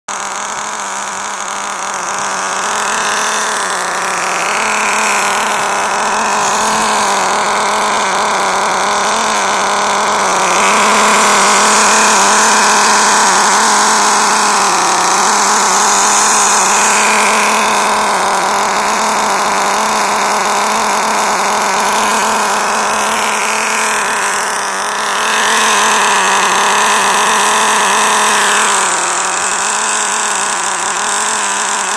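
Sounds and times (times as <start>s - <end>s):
small model engine idling: 0.1s - 31.9s.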